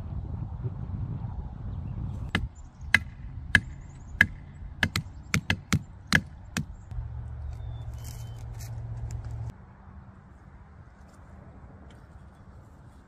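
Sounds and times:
wind rumbling on microphone: 0.0s - 9.6s.

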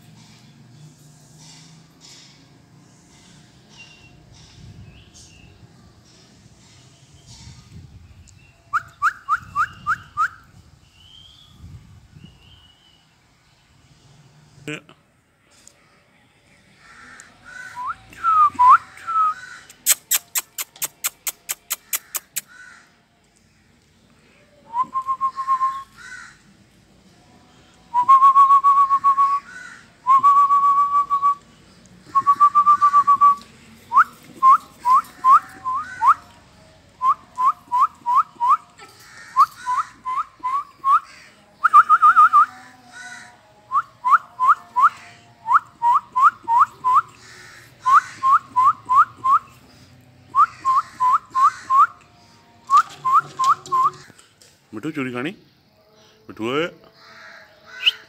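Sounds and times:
person whistling: 24.7s - 25.9s, 27.9s - 29.4s, 30.1s - 31.4s, 32.1s - 36.2s.

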